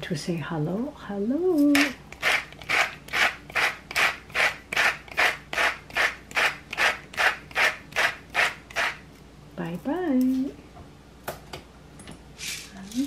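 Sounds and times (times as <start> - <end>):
spice grinder grinding: 1.7 - 9.0.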